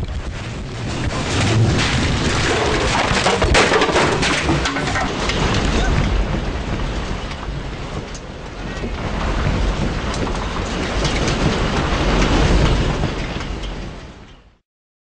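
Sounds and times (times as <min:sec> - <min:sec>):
low earthquake rumble: 0:00.0 - 0:14.6
objects rattling and clattering: 0:01.2 - 0:06.3, 0:08.8 - 0:13.9.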